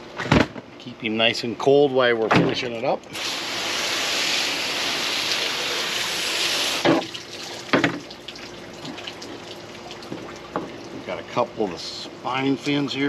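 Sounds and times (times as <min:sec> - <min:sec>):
water spraying from hose nozzle: 0:03.2 - 0:06.9.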